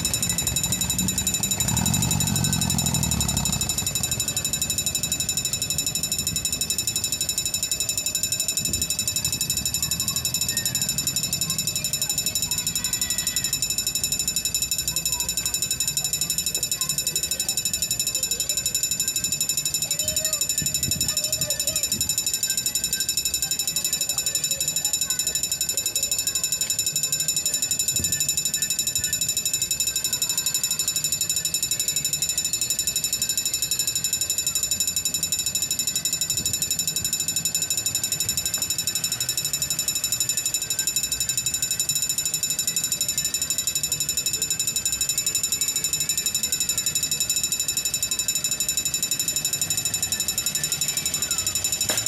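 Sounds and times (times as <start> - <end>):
crossing bell ringing: 0.0 - 52.0.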